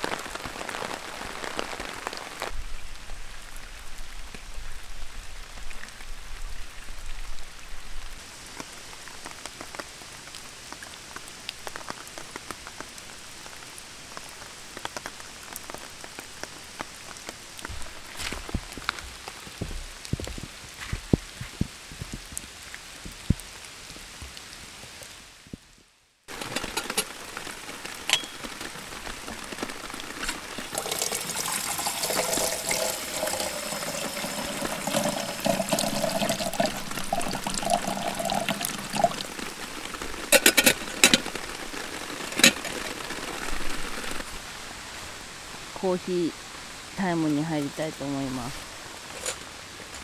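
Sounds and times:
rain falling: 0.0 - 50.0
tap water pouring into kettle: 30.7 - 39.4.

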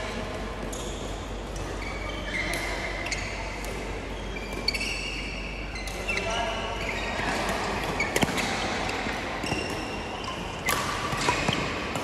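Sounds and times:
shoes squeaking on court floor: 0.4 - 12.0
racket hitting shuttlecock: 7.2 - 12.0.

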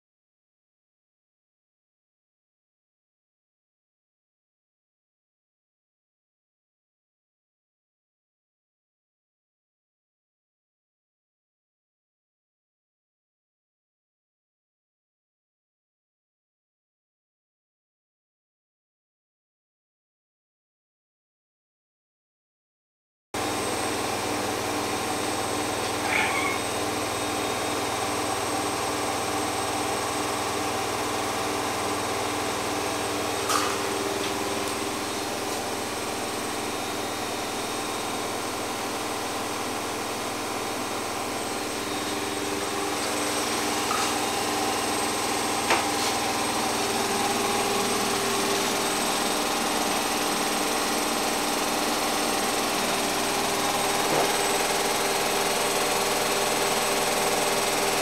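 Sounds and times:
mechanical whirring hum: 23.4 - 58.0.

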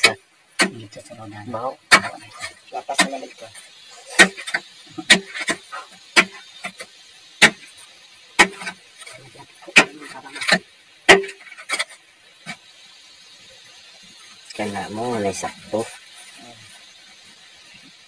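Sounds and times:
steel bar striking rock: 0.0 - 0.9, 1.9 - 12.7.

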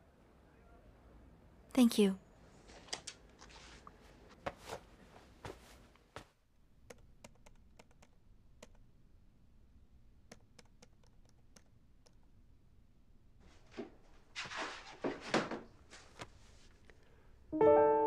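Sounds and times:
typing on laptop keyboard: 6.8 - 8.8, 10.3 - 12.3.

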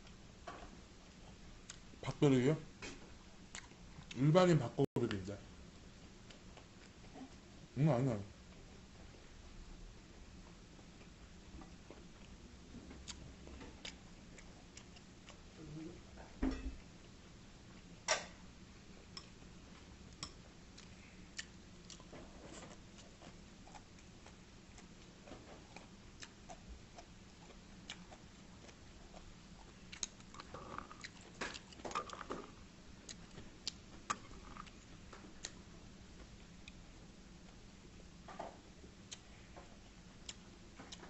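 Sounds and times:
chewing food: 3.5 - 4.2, 10.7 - 15.6, 19.2 - 35.6.

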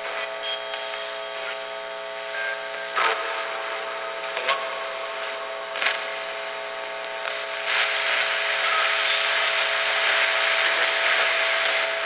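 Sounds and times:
radio static hiss: 0.0 - 12.0
chopped radio fragments: 5.5 - 12.0.

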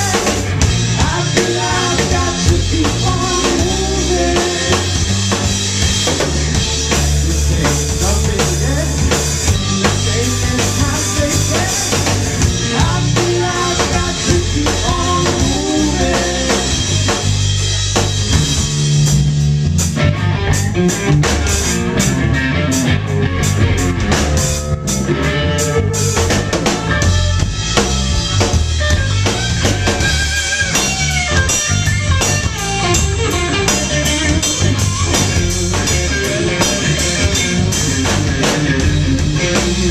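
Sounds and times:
bass guitar: 0.0 - 39.9
electric guitar: 0.0 - 39.9.

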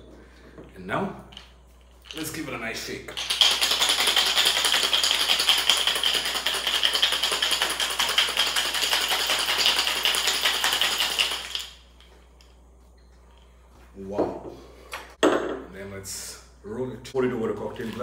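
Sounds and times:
ice rattling in cocktail shaker: 3.1 - 11.8.

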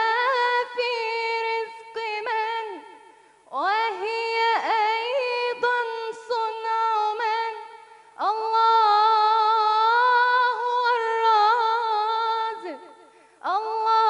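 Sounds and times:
woman singing unaccompanied: 0.0 - 14.0.

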